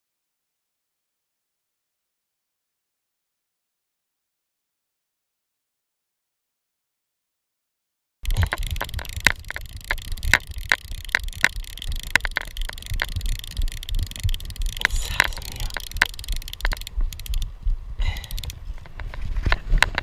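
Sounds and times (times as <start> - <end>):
metal forceps clicking on plastic: 8.2 - 17.4, 18.1 - 18.6
rumble of camera jostling: 8.2 - 20.0.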